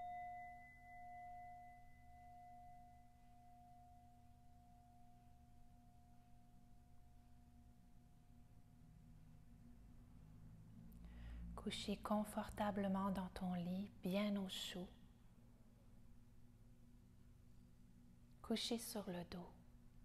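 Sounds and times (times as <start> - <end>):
singing bowl ringing: 0.0 - 7.8.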